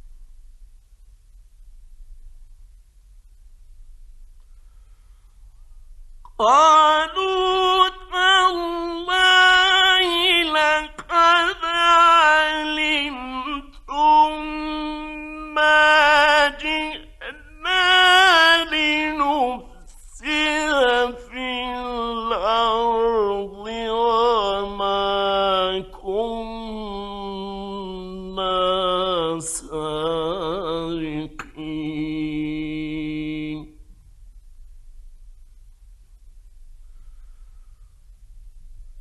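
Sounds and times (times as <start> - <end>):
man chanting recitation: 6.3 - 33.8.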